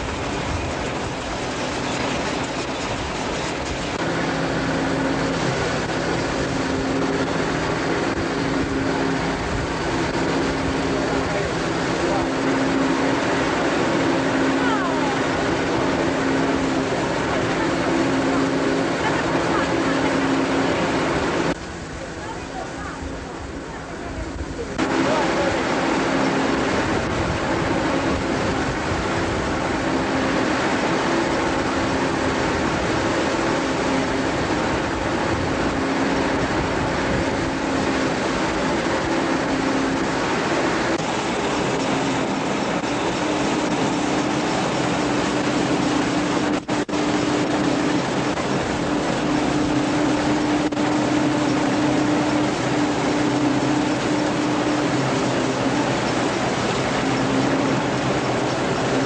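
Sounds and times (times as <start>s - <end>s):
threshing machine clattering: 0.0s - 21.5s.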